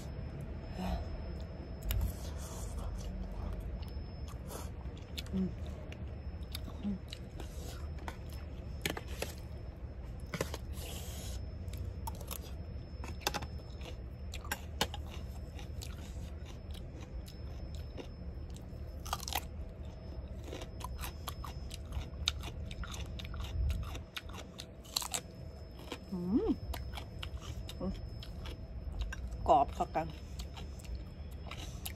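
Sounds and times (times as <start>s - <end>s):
person chewing: 0.0s - 31.9s
sharp food crunches: 10.2s - 19.5s, 20.3s - 26.0s.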